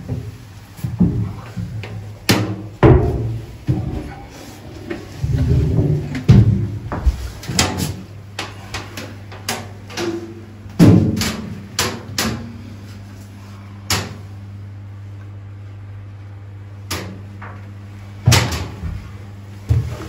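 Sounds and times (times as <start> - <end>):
footsteps on metal plates: 0.0 - 11.3
low machinery hum: 0.0 - 20.0.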